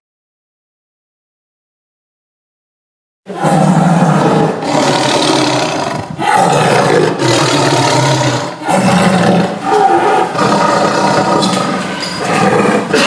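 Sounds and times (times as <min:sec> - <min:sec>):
tiger roaring: 0:03.3 - 0:13.0.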